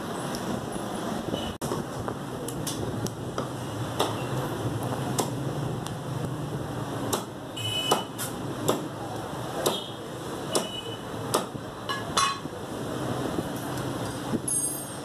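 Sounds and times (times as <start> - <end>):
cleaver chopping on wooden block: 7.9 - 8.9.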